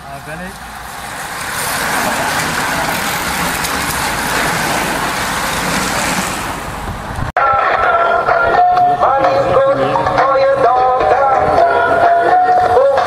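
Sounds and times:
racing cyclists passing: 0:00.0 - 0:07.2
car passing close: 0:00.0 - 0:13.0
music: 0:07.4 - 0:13.0.

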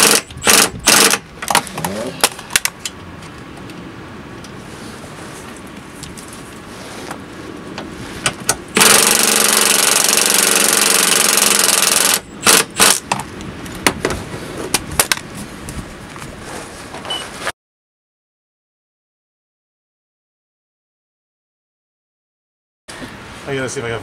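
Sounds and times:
cordless power tool running: 0:08.8 - 0:13.0.

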